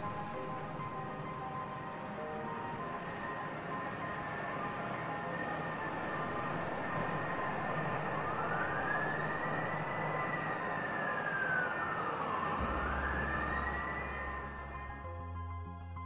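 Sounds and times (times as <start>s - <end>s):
steady rushing noise: 0.0s - 15.1s
emergency siren wailing: 0.0s - 15.3s
low hum: 12.6s - 15.9s.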